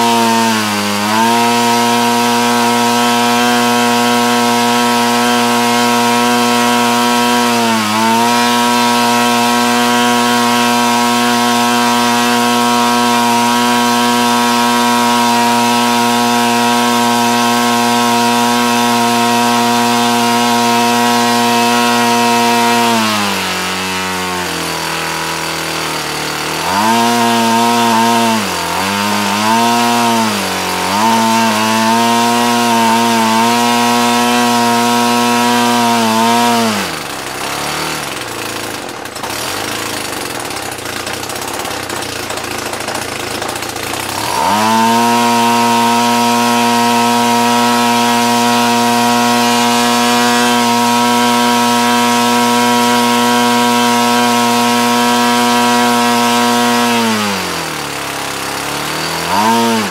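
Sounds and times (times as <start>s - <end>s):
two-stroke engine revving: 0.0s - 59.9s.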